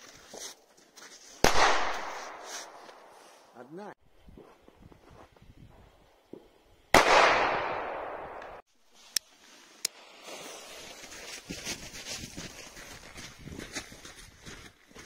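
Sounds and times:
firecracker bang: 7.0 - 8.6.

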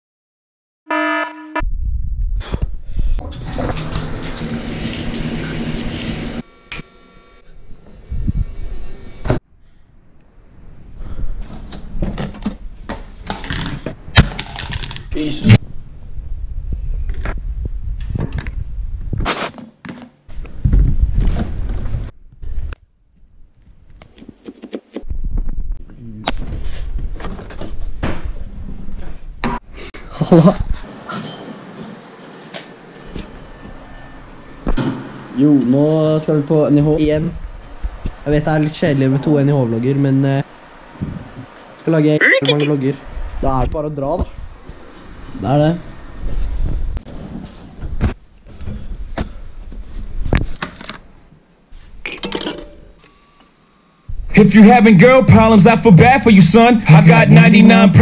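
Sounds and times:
short pitched tone: 0.9 - 1.7.

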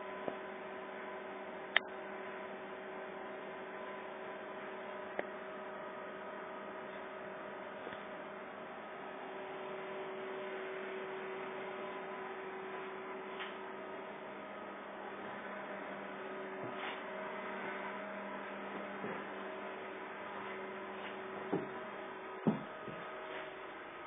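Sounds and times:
electrical hum: 0.0 - 24.0.

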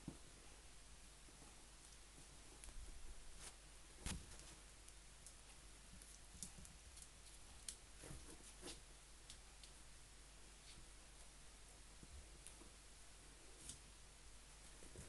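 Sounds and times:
kittens scuffing and claw clicks: 3.4 - 4.7.

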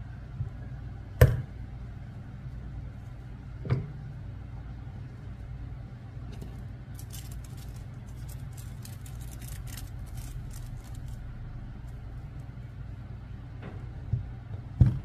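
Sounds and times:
steady low hum: 0.0 - 15.0
foil crinkling: 6.9 - 12.2.

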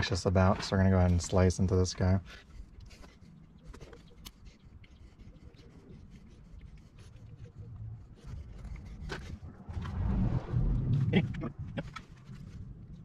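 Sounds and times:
low rumble: 8.8 - 13.0.

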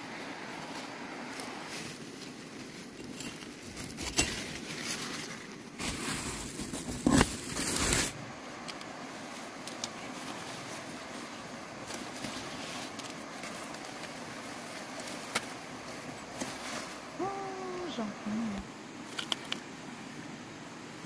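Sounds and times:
rustling of vines and straw: 0.0 - 19.9
steady outdoor hiss: 0.0 - 21.0
small clicks: 19.0 - 19.7.

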